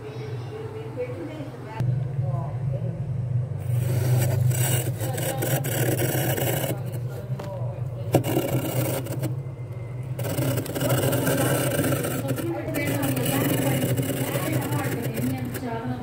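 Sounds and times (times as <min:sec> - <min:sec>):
steady low hum: 0:00.0 - 0:16.0
steel glass scraping frost: 0:03.6 - 0:07.1, 0:08.1 - 0:09.4, 0:10.2 - 0:15.6.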